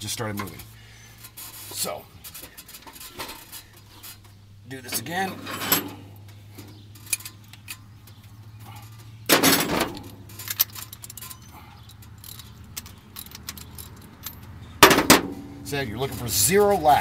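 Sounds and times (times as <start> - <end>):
metal clank: 2.2 - 15.7
socket wrench clicking on metal: 10.0 - 14.6.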